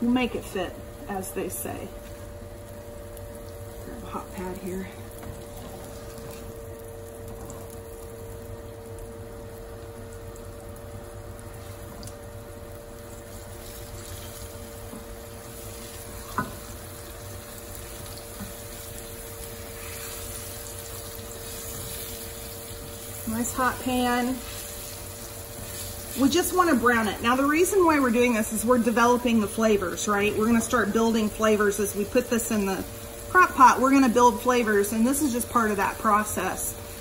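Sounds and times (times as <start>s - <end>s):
vent fan hum: 0.0s - 37.0s
meat sizzling in a skillet: 7.6s - 37.0s.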